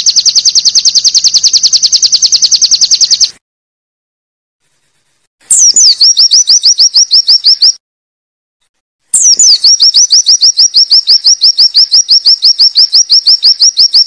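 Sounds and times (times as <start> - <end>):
bird singing whistled notes: 5.5 - 7.8, 9.1 - 14.0.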